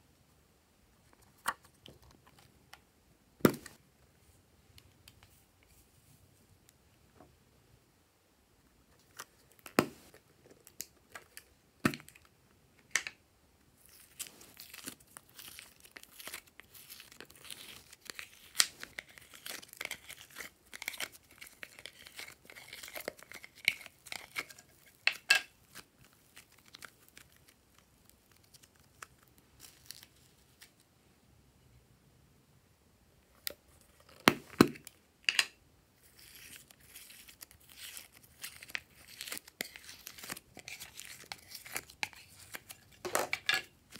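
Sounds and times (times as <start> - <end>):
plastic tubs crinkling: 36.2 - 43.9.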